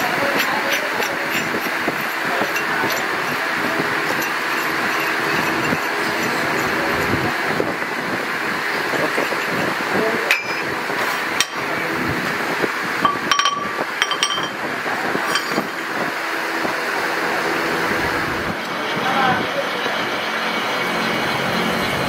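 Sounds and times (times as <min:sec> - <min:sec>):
workshop background noise: 0:00.0 - 0:22.0
metal parts clinking: 0:13.0 - 0:14.6, 0:15.2 - 0:15.8.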